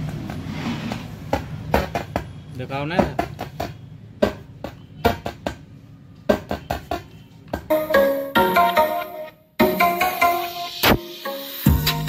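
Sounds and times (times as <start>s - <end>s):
music through speaker: 6.3s - 12.0s.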